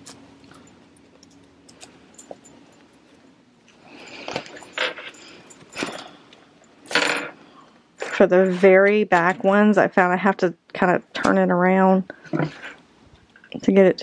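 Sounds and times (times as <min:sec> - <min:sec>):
metallic clinks: 0:00.0 - 0:07.4.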